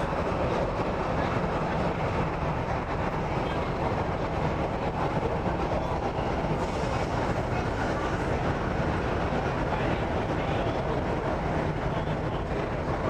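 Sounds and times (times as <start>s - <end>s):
train wheels rumbling on rail: 0.0s - 13.0s.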